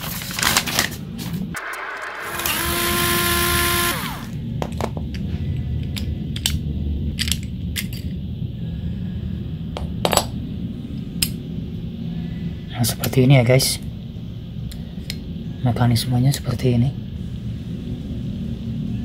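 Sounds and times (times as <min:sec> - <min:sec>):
whine over hiss: 0:01.2 - 0:19.0.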